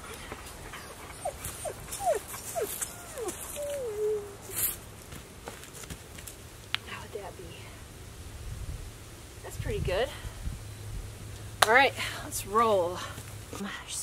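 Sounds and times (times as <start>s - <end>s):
light rustling: 0.0s - 6.9s
dog whining: 0.6s - 4.7s.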